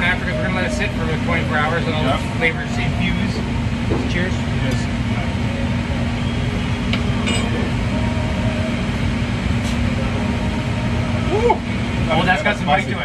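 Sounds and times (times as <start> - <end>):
ventilation and machinery drone: 0.0 - 13.0
metallic clink: 6.9 - 7.6.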